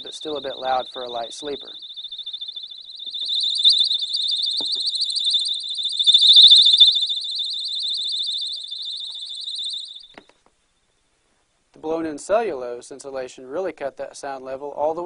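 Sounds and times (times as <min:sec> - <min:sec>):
electronic alarm pulsing high tone: 0:00.0 - 0:10.1.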